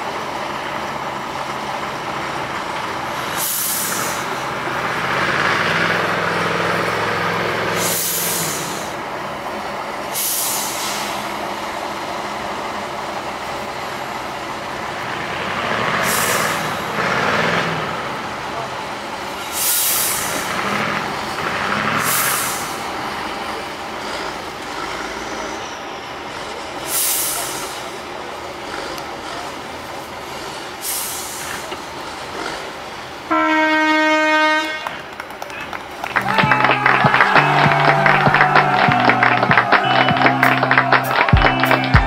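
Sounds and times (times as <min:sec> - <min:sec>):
truck diesel engine revving: 0:00.0 - 0:42.0
air brake hisses: 0:03.2 - 0:04.4, 0:07.7 - 0:09.0, 0:10.1 - 0:11.4, 0:16.0 - 0:16.9, 0:19.4 - 0:20.6, 0:21.9 - 0:22.9, 0:26.8 - 0:28.0, 0:30.8 - 0:31.8.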